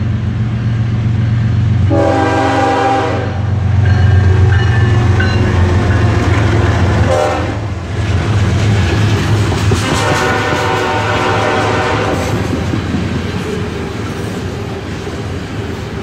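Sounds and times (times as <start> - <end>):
locomotive engine rumble: 0.0 - 16.0
locomotive air horn: 1.8 - 3.6, 7.0 - 7.7, 9.8 - 12.4.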